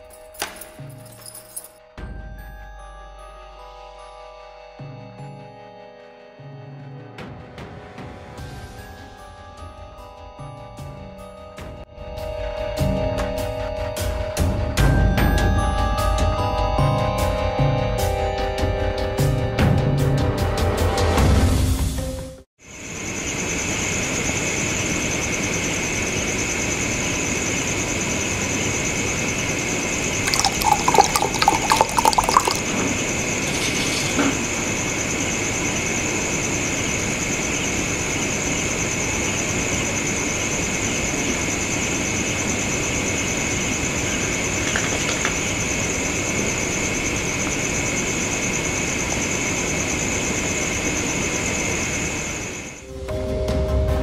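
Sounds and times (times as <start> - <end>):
water poured into a glass: 30.2 - 33.7.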